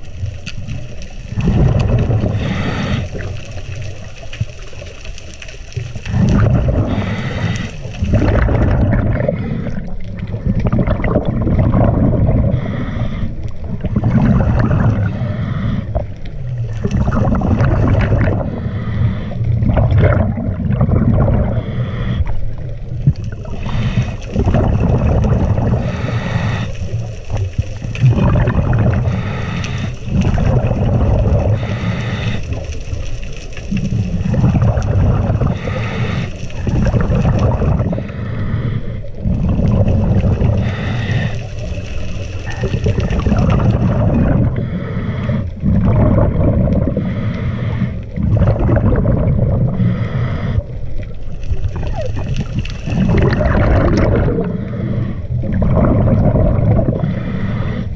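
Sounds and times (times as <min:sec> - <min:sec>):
rumble of exhaled bubbles: 0:00.0 - 0:57.9
hissing whistling inhale: 0:02.3 - 0:03.4, 0:06.9 - 0:08.0, 0:18.5 - 0:19.6, 0:25.7 - 0:27.0, 0:29.0 - 0:30.1, 0:31.5 - 0:32.6, 0:35.5 - 0:36.6, 0:44.6 - 0:45.6, 0:47.0 - 0:48.2, 0:49.8 - 0:50.9, 0:56.9 - 0:57.9.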